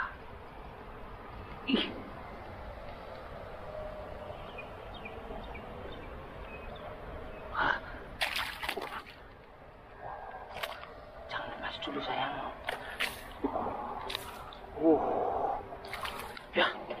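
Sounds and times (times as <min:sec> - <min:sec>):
fish splashing in shallow water: 0:08.2 - 0:09.3, 0:12.6 - 0:14.6, 0:15.8 - 0:16.5.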